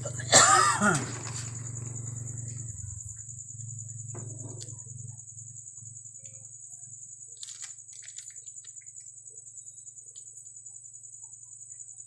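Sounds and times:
low steady hum: 0.0s - 7.3s
crickets trilling: 0.0s - 12.0s.

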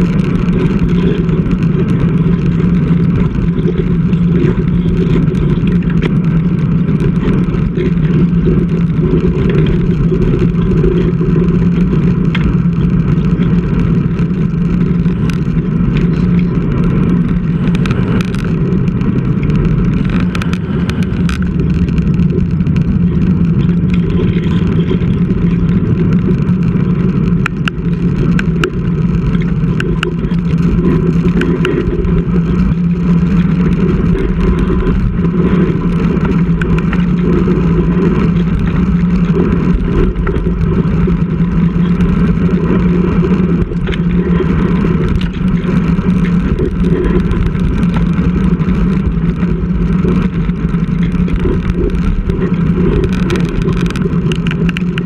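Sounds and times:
constant low hum: 0.0s - 55.0s
small clicks and rattles: 0.0s - 55.0s
wind and road rumble: 0.0s - 55.0s.

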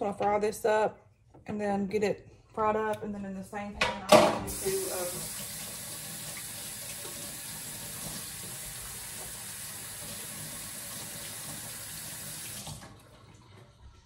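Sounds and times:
faucet running into sink: 4.4s - 14.0s.

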